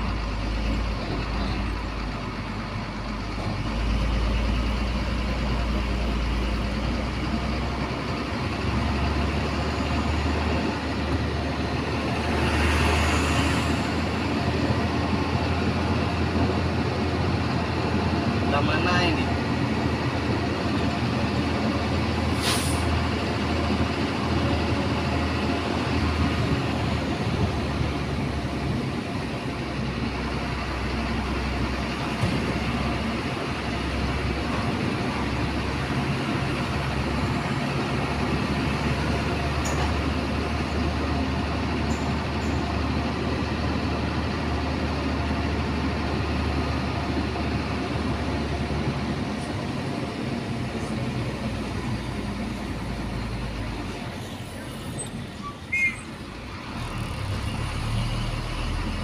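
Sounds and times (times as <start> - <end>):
truck diesel engine running: 0.0 - 59.0
brief hiss: 22.4 - 22.9.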